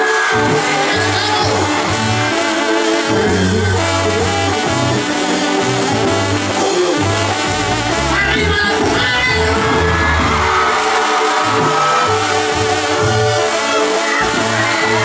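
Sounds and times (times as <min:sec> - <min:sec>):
trumpets and trombones melody: 0:00.0 - 0:15.0
tuba bass notes: 0:00.0 - 0:15.0.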